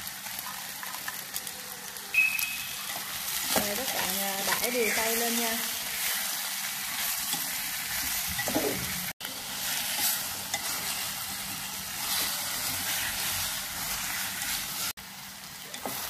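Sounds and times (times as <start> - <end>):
food sizzling in hot oil: 0.0 - 16.0
utensil scraping food in pot: 2.8 - 15.0.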